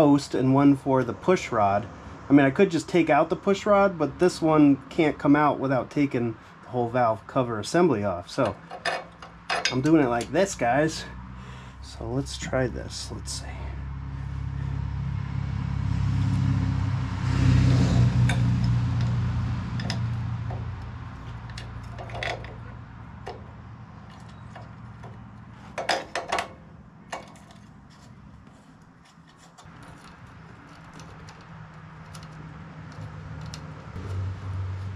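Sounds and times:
tools clinking on metal engine parts: 8.4 - 10.4, 18.2 - 27.8, 29.0 - 33.9.

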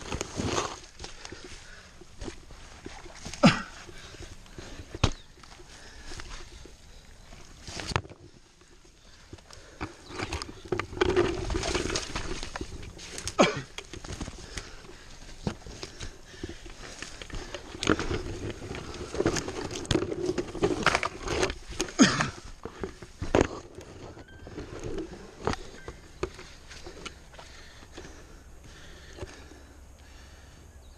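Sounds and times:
branches dragged: 0.0 - 28.2
leaves rustling: 0.0 - 30.3
twigs snapping: 7.4 - 29.5.

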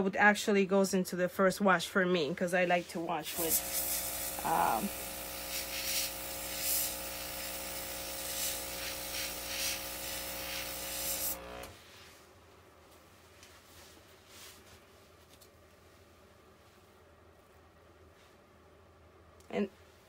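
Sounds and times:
airbrush spraying hiss: 3.3 - 11.5
small compressor humming: 3.3 - 11.8.

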